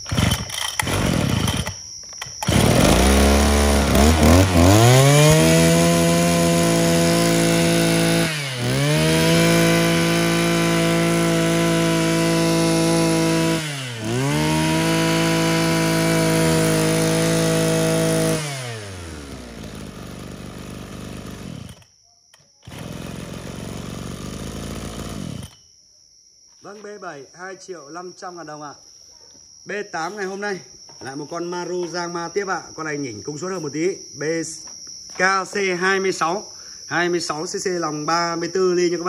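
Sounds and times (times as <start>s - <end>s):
brush cutter engine revving: 0.0s - 21.9s, 22.6s - 25.6s.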